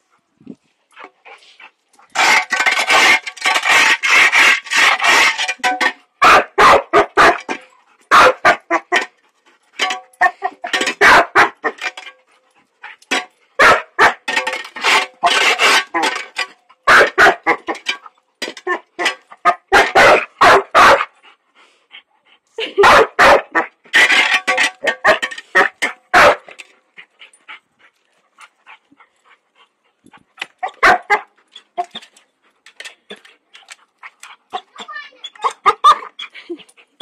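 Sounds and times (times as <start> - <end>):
metal shovel scraping concrete: 1.3 - 12.2, 12.9 - 20.6, 23.3 - 26.8
puppy barking: 6.2 - 7.4, 8.1 - 8.6, 13.6 - 14.2, 19.5 - 21.1, 22.8 - 23.7, 25.1 - 26.5, 30.7 - 31.3, 35.4 - 36.1.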